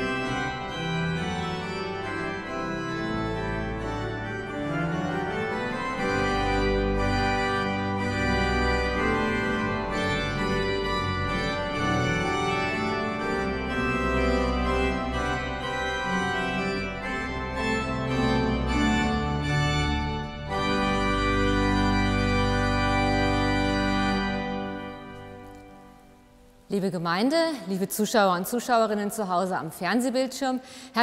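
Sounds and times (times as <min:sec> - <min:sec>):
church pipe organ playing: 0:00.0 - 0:26.6.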